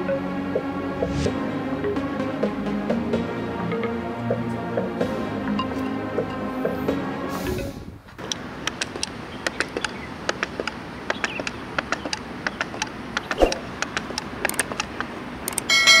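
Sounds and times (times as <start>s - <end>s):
wooden toy legs clacking on board: 8.7s - 15.7s.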